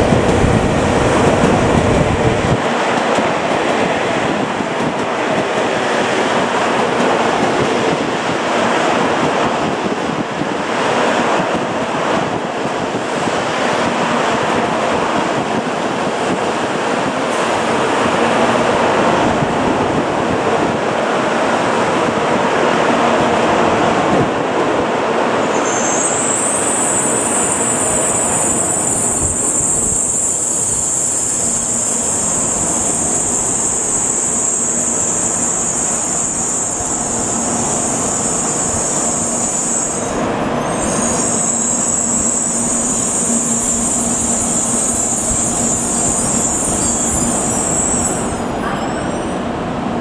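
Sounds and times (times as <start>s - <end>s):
train wheels rolling rumble: 0.0s - 20.9s.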